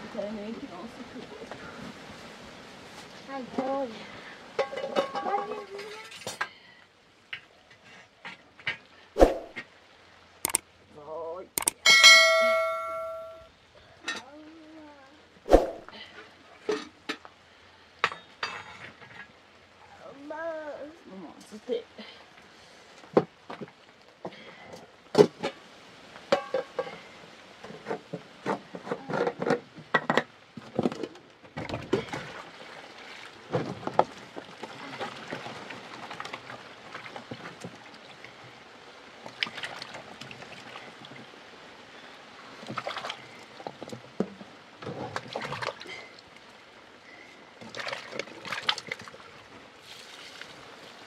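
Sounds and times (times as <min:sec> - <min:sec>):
water sloshing and splashing: 0:08.0 - 0:10.6, 0:15.5 - 0:17.0, 0:25.1 - 0:51.0.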